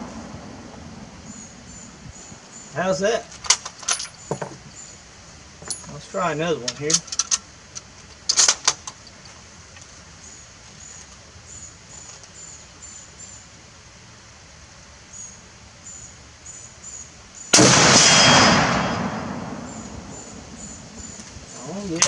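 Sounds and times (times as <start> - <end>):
loud rifle shot with echo: 17.6 - 20.4.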